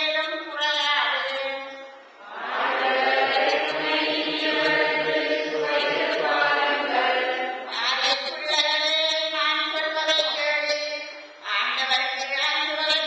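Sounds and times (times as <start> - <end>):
choir and congregation singing: 2.2 - 7.8.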